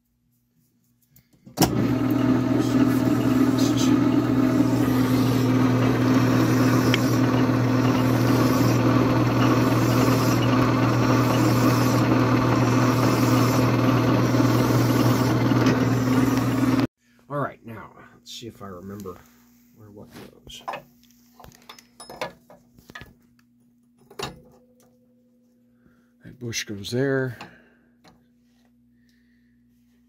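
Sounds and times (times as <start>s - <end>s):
lathe motor humming: 1.6s - 16.9s.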